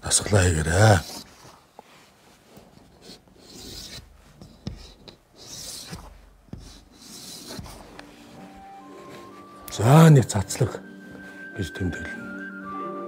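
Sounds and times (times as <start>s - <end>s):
chalk scratching on chalkboard: 0.3s - 1.3s, 2.7s - 9.4s
chalk tapping board: 3.0s - 8.6s.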